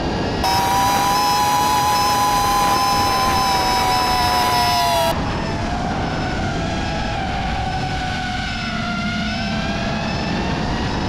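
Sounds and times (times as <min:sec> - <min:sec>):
quadcopter propellers whining: 0:00.3 - 0:05.2.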